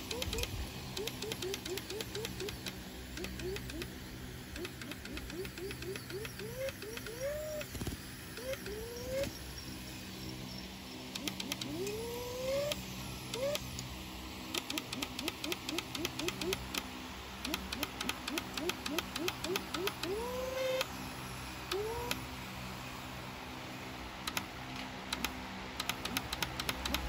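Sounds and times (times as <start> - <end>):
rapid ticking: 0.0 - 7.7, 11.1 - 12.0, 14.5 - 20.2, 25.1 - 27.0
motor whining in rising bursts: 0.0 - 24.2
low engine hum: 0.0 - 27.0.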